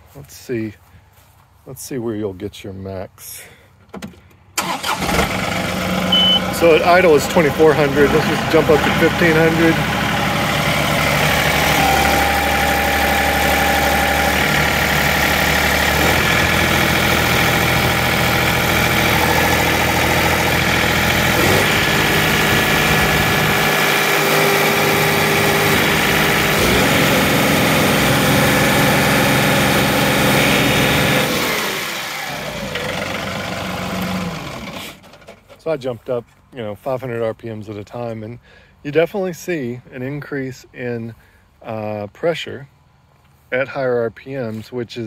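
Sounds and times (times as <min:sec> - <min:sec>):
diesel engine running under load: 0:04.6 - 0:35.5.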